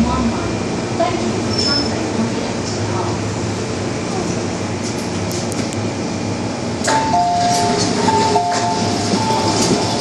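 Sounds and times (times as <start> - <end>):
train running noise: 0.0 - 10.0
train jolt: 6.8 - 10.0.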